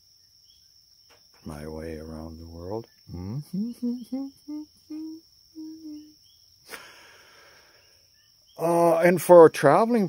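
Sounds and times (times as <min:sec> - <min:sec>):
crickets chirring: 0:00.0 - 0:10.0
man humming: 0:03.1 - 0:06.1
breathy hiss: 0:06.6 - 0:08.2.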